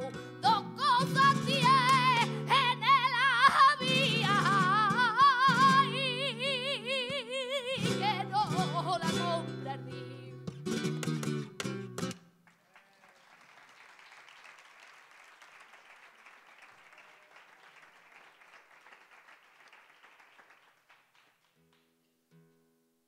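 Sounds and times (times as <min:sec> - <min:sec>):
acoustic guitar strumming: 0:00.0 - 0:07.2, 0:07.8 - 0:12.3
person singing flamenco: 0:00.0 - 0:12.2
plucked acoustic guitar notes: 0:07.8 - 0:12.3
audience applauding: 0:12.4 - 0:21.8.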